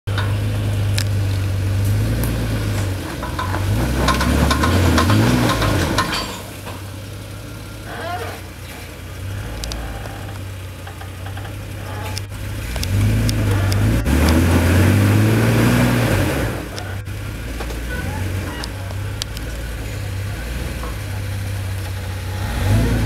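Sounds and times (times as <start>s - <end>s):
truck engine pulling at low speed: 0.0s - 23.0s
faint clicks: 9.5s - 14.4s, 18.5s - 19.6s.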